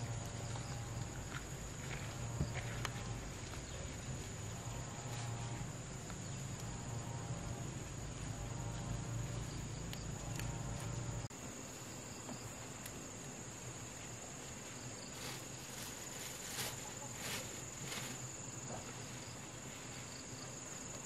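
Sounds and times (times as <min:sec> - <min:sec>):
low hum: 0:00.0 - 0:11.3
insects chirring: 0:00.0 - 0:21.0.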